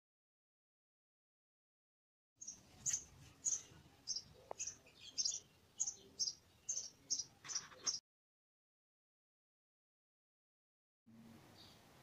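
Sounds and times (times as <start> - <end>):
small bird chirping: 2.4 - 8.0.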